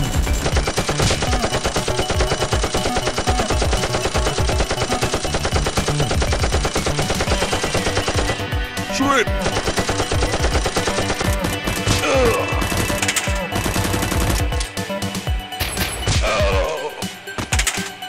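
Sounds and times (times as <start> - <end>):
background music: 0.0 - 18.0
rapid automatic gunfire effects: 0.2 - 8.5, 9.4 - 14.6.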